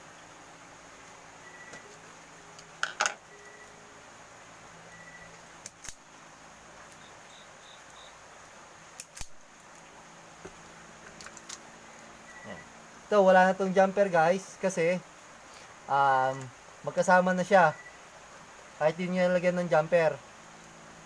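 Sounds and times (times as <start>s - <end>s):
steady low hiss: 0.0s - 21.0s
wire stripper clicking: 5.6s - 6.0s, 9.0s - 9.4s.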